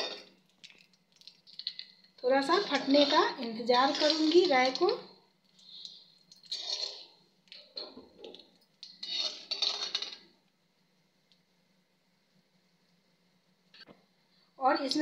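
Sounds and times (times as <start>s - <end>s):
metal spatula scraping a pan: 2.4s - 4.9s, 6.5s - 7.2s, 9.0s - 10.2s.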